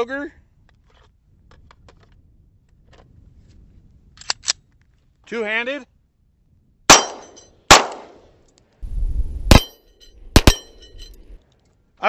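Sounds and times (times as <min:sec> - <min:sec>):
pistol shots: 0:06.9 - 0:08.3, 0:09.5 - 0:10.9.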